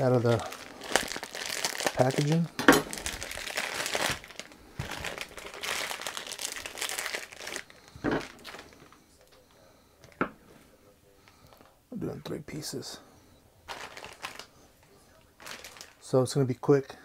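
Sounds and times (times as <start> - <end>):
plastic packaging crinkling: 0.0 - 8.9, 13.6 - 16.4.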